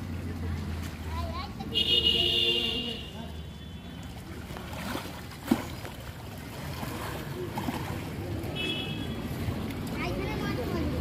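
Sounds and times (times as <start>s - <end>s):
feet sloshing through muddy water: 3.4s - 11.0s.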